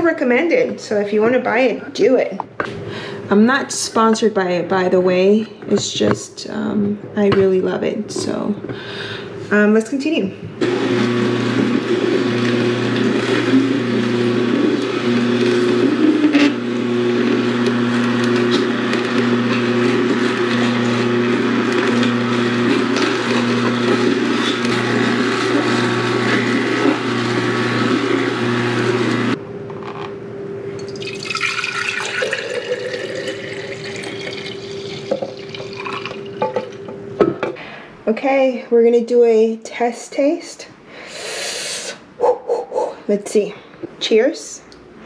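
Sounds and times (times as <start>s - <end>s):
juicer motor humming: 10.6s - 37.3s
juice pouring into a glass: 30.8s - 36.8s.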